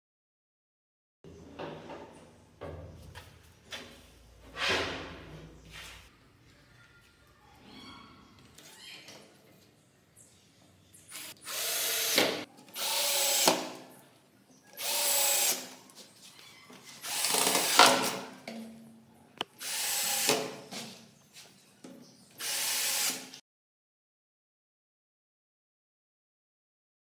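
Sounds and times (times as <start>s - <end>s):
cordless drill driving screws: 11.1s - 13.8s, 14.8s - 15.7s, 17.0s - 18.2s, 19.6s - 20.6s, 22.4s - 23.4s.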